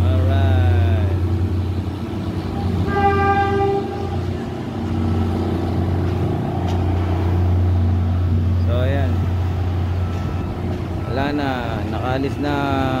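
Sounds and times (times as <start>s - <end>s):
train horn blast: 2.5s - 4.5s.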